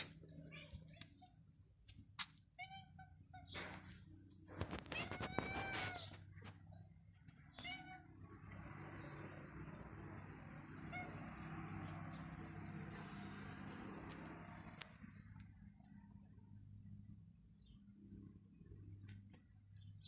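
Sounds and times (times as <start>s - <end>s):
young cat meowing: 4.8s - 6.2s, 7.5s - 8.1s.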